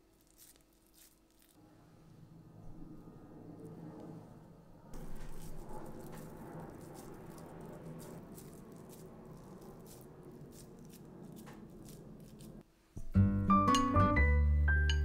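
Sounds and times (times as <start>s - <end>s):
vibraphone music: 13.4s - 15.0s.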